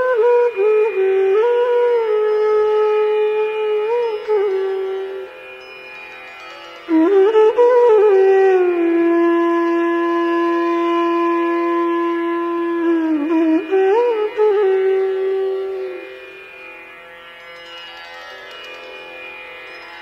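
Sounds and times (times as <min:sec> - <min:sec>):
conch shell blown: 0:00.0 - 0:05.8, 0:06.9 - 0:16.8.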